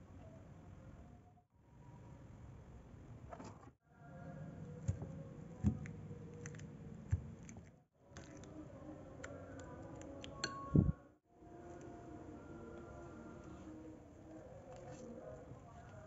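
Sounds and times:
fork clinking against glass bowl: 10.4s - 10.8s.

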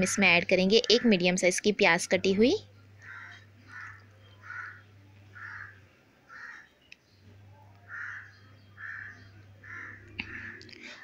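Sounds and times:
low steady hum: 0.0s - 11.0s
crow cawing: 3.0s - 6.7s, 7.9s - 10.7s.

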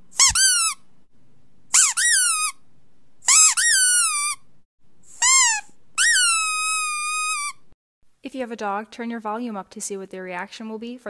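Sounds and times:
high-pitched squeaks: 0.1s - 0.8s, 1.7s - 2.6s, 3.2s - 4.5s, 5.1s - 7.7s.

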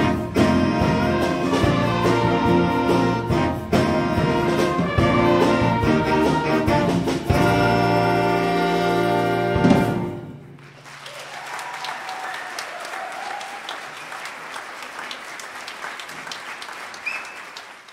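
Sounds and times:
jazz big band chord: 0.0s - 10.5s
audience applause: 10.5s - 17.9s.

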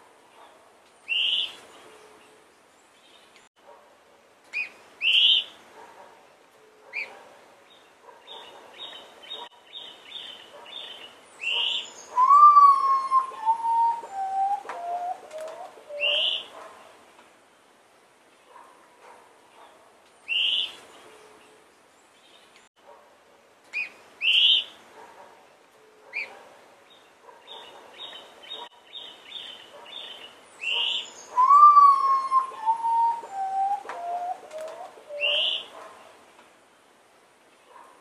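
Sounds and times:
birds chirping: 4.5s - 17.0s, 25.7s - 36.2s
mournful bird whistles: 11.5s - 15.2s, 30.7s - 34.4s.

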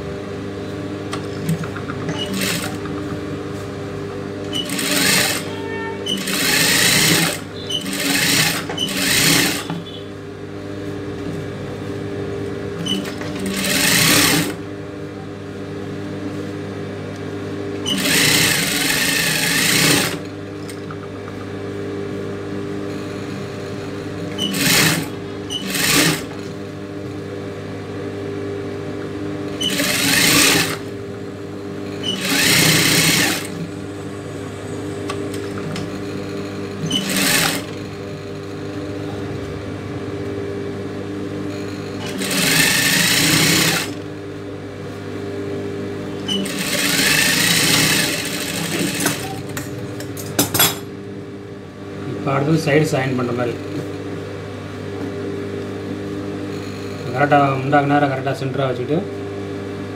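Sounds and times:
motor hum: 0.0s - 58.2s
sewing machine stitching: 1.4s - 2.8s, 4.5s - 10.0s, 12.8s - 14.6s, 17.9s - 20.3s, 24.4s - 26.4s, 29.6s - 30.9s, 32.0s - 33.7s, 36.8s - 37.9s, 42.0s - 44.0s, 46.3s - 49.5s.

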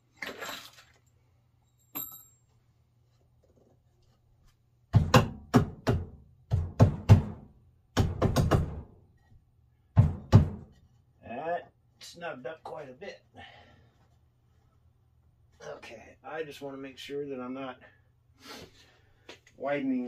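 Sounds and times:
heavy knocks on wooden frame: 4.9s - 9.0s, 9.9s - 10.8s.

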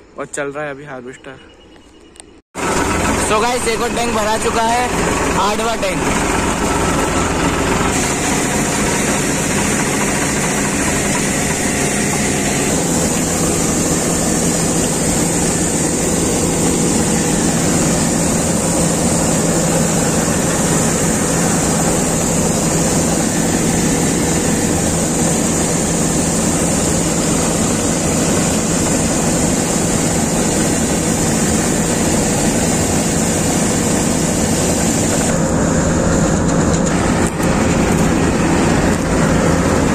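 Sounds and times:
combine harvester engine: 2.2s - 39.9s
grain pouring with high hiss: 7.8s - 35.3s.

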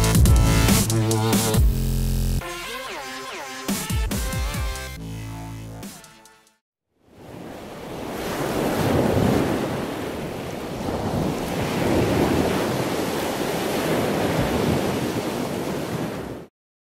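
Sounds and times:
ocean surf washing: 7.1s - 16.5s.

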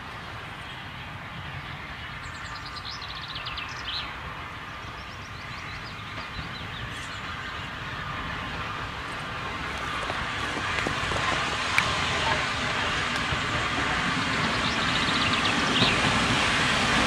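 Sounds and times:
distant steam train: 0.0s - 17.0s
birds singing: 0.6s - 8.8s, 13.4s - 16.4s.

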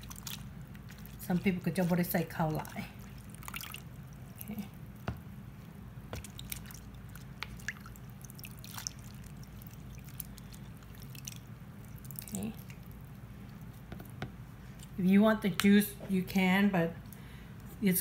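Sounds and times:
brine dripping and trickling: 0.0s - 14.0s
wet squishes: 0.0s - 15.0s.

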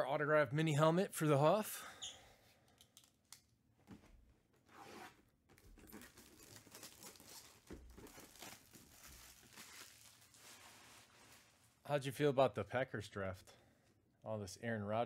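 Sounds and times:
plastic bag crinkling: 5.6s - 11.8s.

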